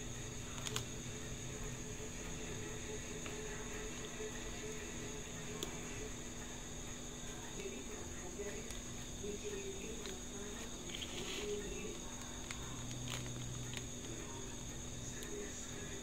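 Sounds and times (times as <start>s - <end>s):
plastic crinkle: 0.4s - 0.9s, 8.4s - 15.6s.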